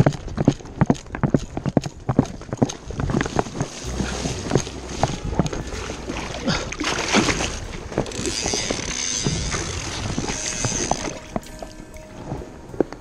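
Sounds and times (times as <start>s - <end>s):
wind rumble on microphone: 0.0s - 13.0s
legs sloshing through water: 2.6s - 13.0s.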